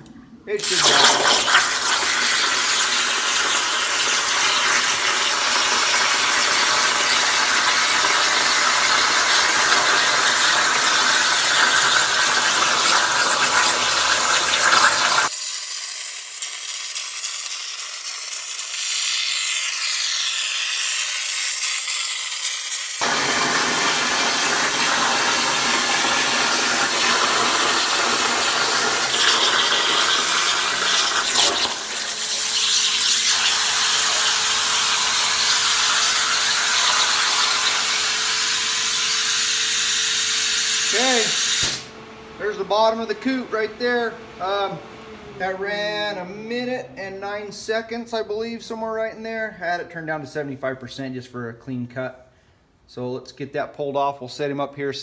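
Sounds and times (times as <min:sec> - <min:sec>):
plasma cutter hissing: 0:00.6 - 0:41.9.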